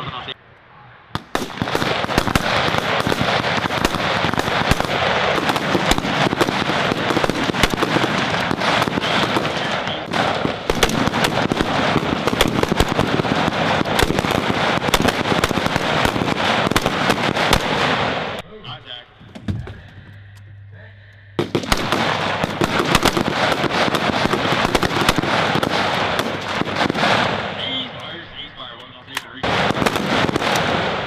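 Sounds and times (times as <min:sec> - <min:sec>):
many rifles firing: 0:01.2 - 0:19.8, 0:21.4 - 0:31.0.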